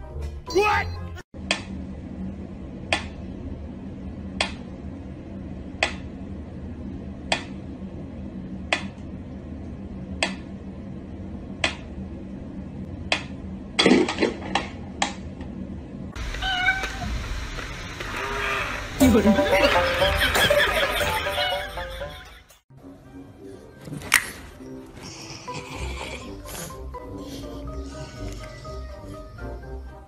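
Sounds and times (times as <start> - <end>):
cat meowing: 16.3 - 17.1.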